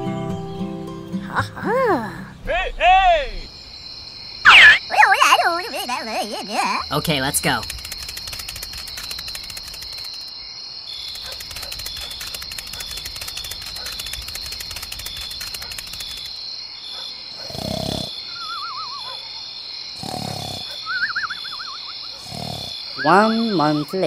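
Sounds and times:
fast rattle of clicks: 6.9s - 10.3s, 11.1s - 16.4s.

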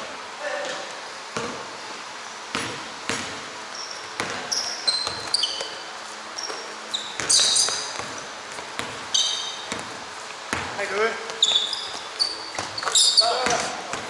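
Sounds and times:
basketballs bouncing on court: 0.6s - 1.7s, 2.5s - 5.8s, 6.4s - 14.0s
sneaker squeaks on floor: 2.6s - 10.0s, 10.6s - 14.0s.

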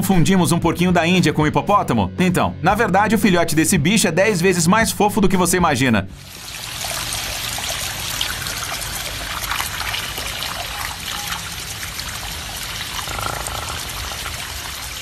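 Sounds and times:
water running from a hose: 6.2s - 15.0s.

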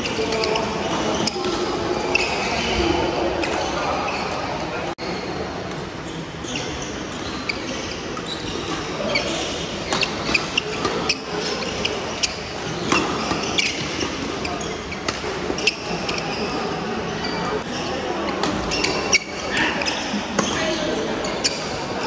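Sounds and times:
rackets striking shuttlecock: 9.9s - 14.4s.

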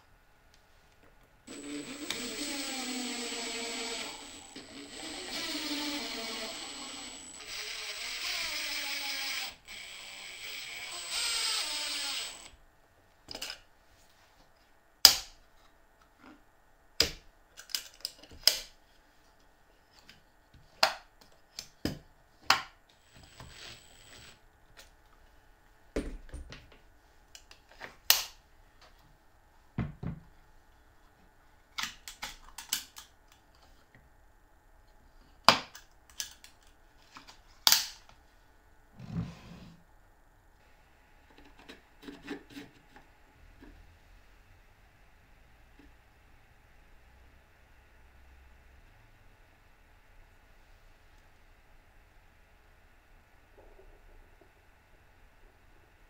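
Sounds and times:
cordless screwdriver driving screw: 1.5s - 12.5s.

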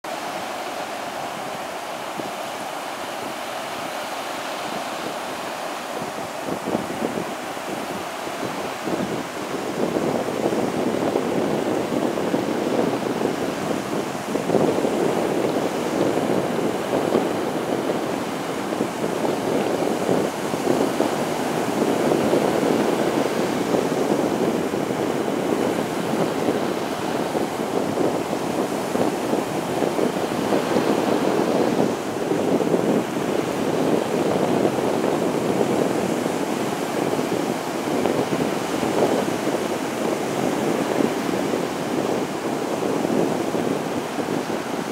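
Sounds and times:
surf waves breaking on sand: 0.0s - 44.9s.

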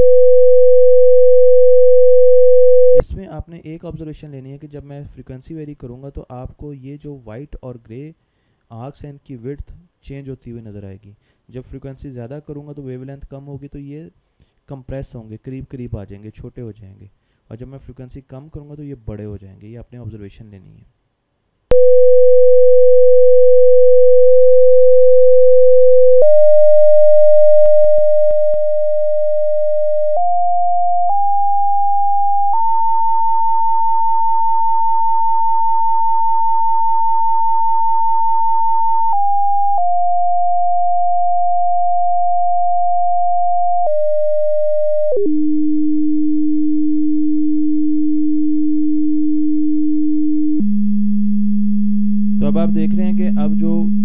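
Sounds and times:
pure sine tone stepping in pitch: 0.0s - 3.0s, 21.7s - 54.0s.

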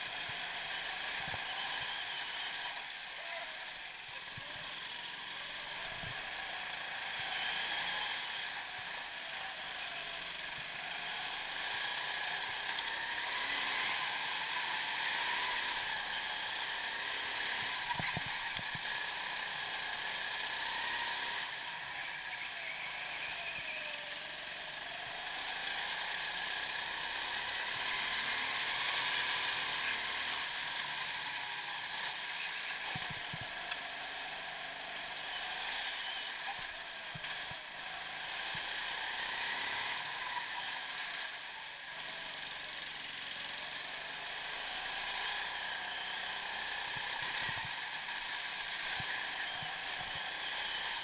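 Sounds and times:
go-kart engine: 0.0s - 51.0s.

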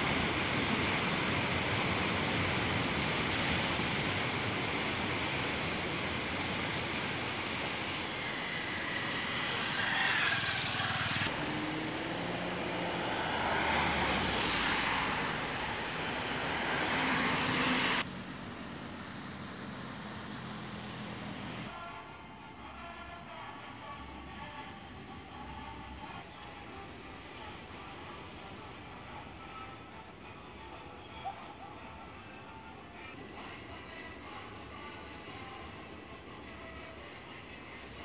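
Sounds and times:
surf washing: 0.0s - 18.0s
distant road noise: 0.0s - 38.0s
traffic with engine hum: 0.0s - 38.0s.

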